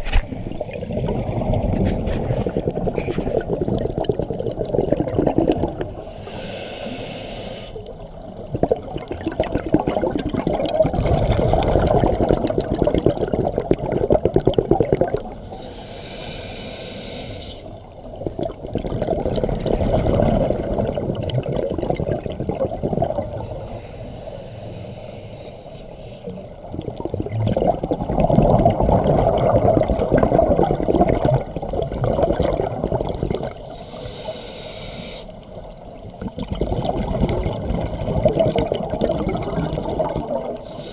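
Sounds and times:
exhaled air bubbling: 0:00.0 - 0:40.9
regulator inhalation hiss: 0:06.0 - 0:07.8, 0:15.4 - 0:17.8, 0:23.4 - 0:26.4, 0:33.6 - 0:35.5, 0:40.6 - 0:40.9.

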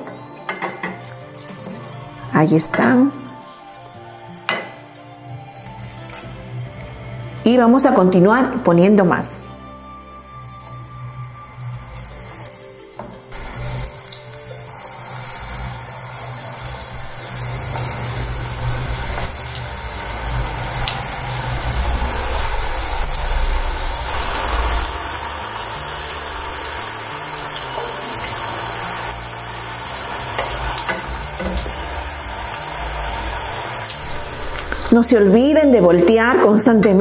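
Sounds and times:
food deep-frying in oil: 0:10.5 - 0:35.5.

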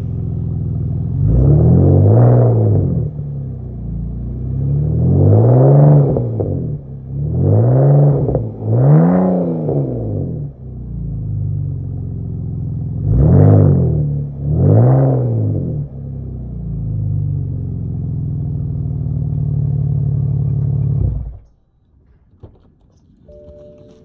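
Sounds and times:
car exhaust idling and revving: 0:00.0 - 0:21.6.

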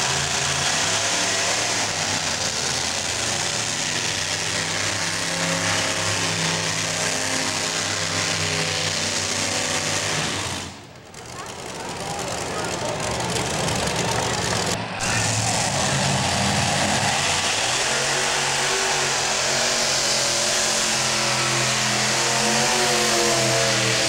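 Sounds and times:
tractor engines running hard: 0:00.0 - 0:24.0.

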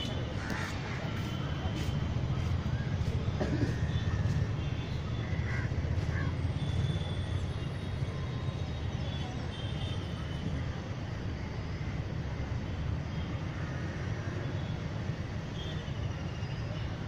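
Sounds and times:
crows cawing: 0:05.2 - 0:06.3.

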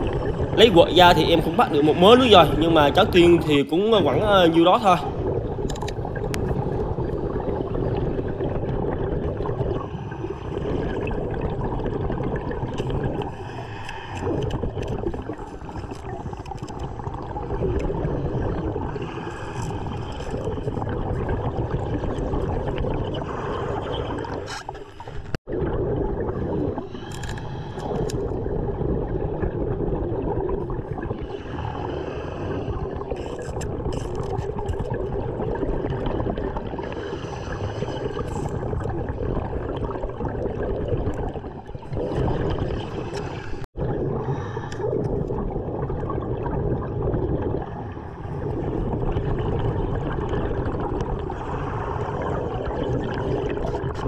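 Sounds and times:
bubbling exhalations: 0:00.0 - 0:54.0
diver breathing underwater: 0:06.3 - 0:25.4, 0:26.3 - 0:29.0, 0:30.9 - 0:34.5, 0:36.2 - 0:39.2, 0:42.0 - 0:45.4, 0:50.7 - 0:53.9.

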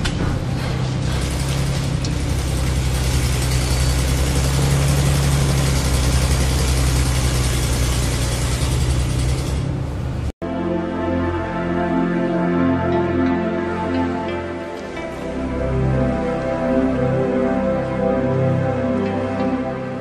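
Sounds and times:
tractor engine running: 0:00.0 - 0:10.3
soft music: 0:10.4 - 0:20.0.

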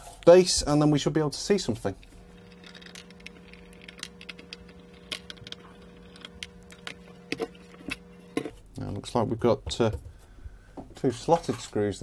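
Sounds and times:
steady low hum: 0:00.6 - 0:09.4
screwdriver and screws clicking: 0:02.4 - 0:08.5.

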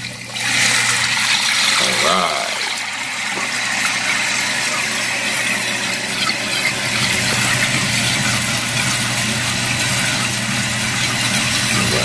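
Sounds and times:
water filling toilet tank: 0:00.0 - 0:12.0.

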